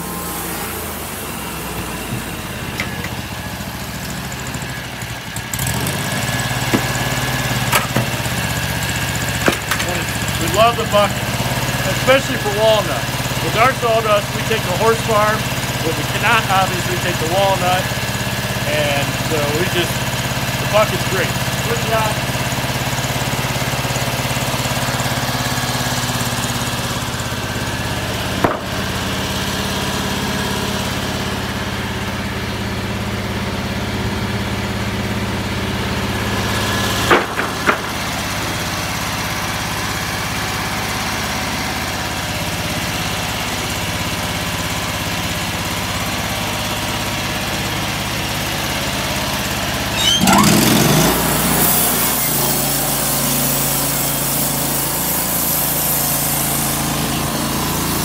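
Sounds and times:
sawmill engine running: 0:00.0 - 0:58.0
sharp knocks: 0:06.7 - 0:07.0, 0:28.4 - 0:28.8, 0:37.1 - 0:38.1.

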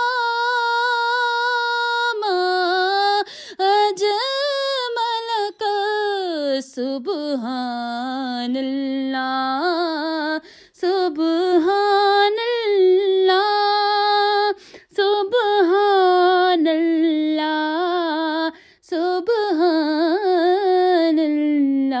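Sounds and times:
person singing a cappella: 0:00.0 - 0:22.0
singer breathing: 0:03.2 - 0:03.6, 0:10.4 - 0:10.8, 0:14.6 - 0:14.9, 0:18.5 - 0:18.8.

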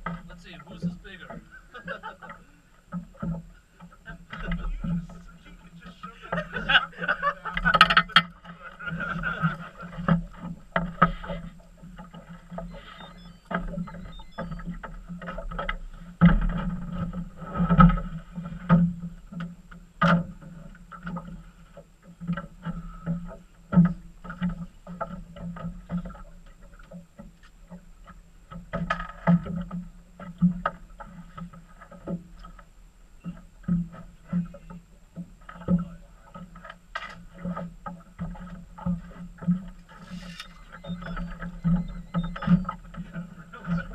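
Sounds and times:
steady low hum: 0:00.0 - 0:43.9
water lapping against boat hull: 0:00.0 - 0:43.9
irregular knocks: 0:05.8 - 0:18.1, 0:40.6 - 0:43.9.

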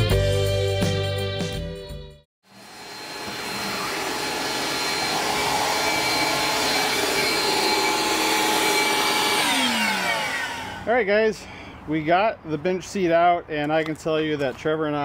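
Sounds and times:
shop vacuum whining: 0:02.4 - 0:10.9.

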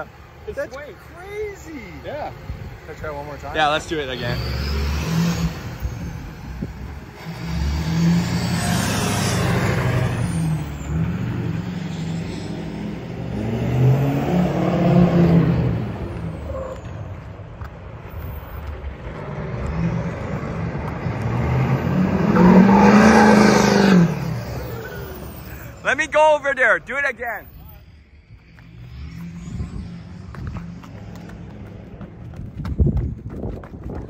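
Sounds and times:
truck engine revving: 0:02.1 - 0:17.1, 0:18.8 - 0:26.9.

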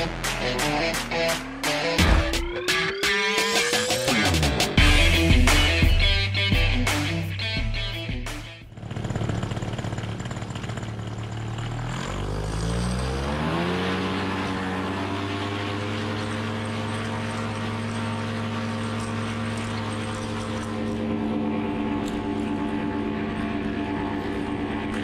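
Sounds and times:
paramotor engine and propeller: 0:08.7 - 0:25.0.

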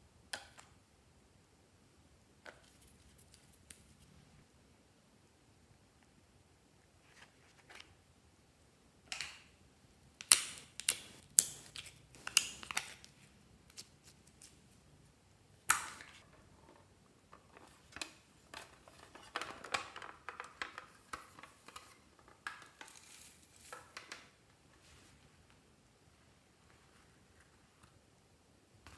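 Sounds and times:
plastic containers clicking and knocking: 0:17.3 - 0:22.9.

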